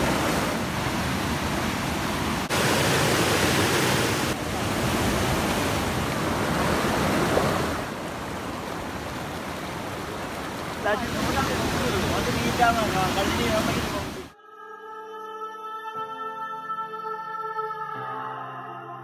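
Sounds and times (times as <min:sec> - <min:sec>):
stream rushing over rocks: 0:00.0 - 0:14.4.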